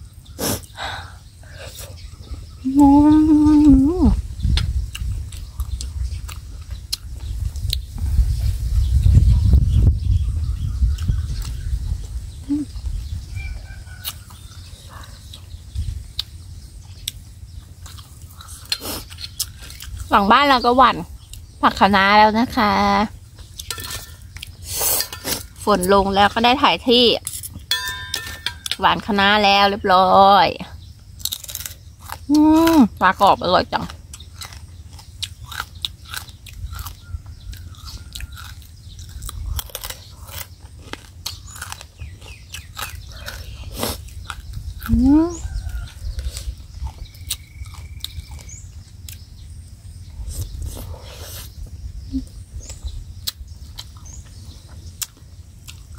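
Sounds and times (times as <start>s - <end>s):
steady low rumble: 0.0s - 24.7s, 25.4s - 55.9s
person chewing food: 4.6s - 8.1s, 13.8s - 20.1s, 31.2s - 32.3s, 33.9s - 49.4s, 52.7s - 55.9s.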